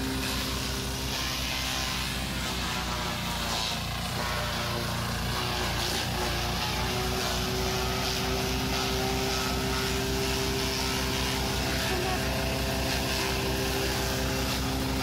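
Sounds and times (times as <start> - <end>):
corn stalks being chopped: 0.0 - 4.7
forage chopper running: 0.0 - 15.0.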